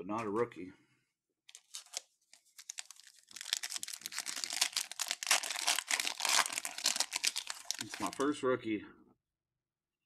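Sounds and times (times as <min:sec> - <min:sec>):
plastic wrapper crinkling and tearing: 0:01.5 - 0:08.3.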